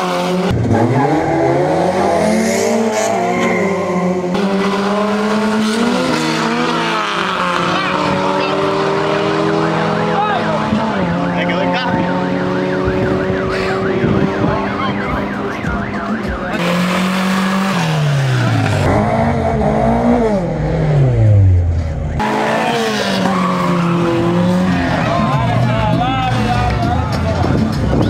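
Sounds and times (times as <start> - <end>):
race cars revving and accelerating: 0.0 - 28.0
warbling siren-like tone: 11.0 - 16.7.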